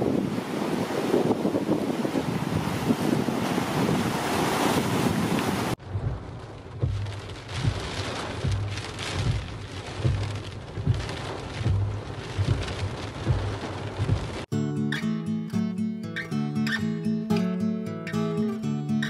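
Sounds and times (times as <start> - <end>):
waves washing against jetty: 0.0 - 14.5
wind buffeting microphone: 0.0 - 14.5
rain hitting car windscreen: 0.6 - 14.5.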